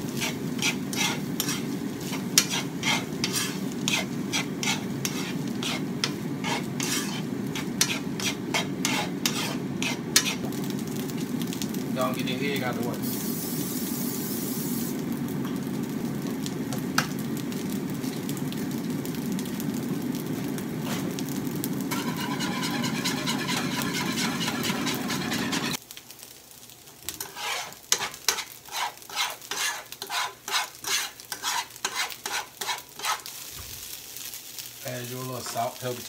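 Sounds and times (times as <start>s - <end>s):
food sizzling in pans: 0.0s - 36.0s
fork beating egg in pan: 0.2s - 10.5s, 21.9s - 25.8s, 27.2s - 33.2s.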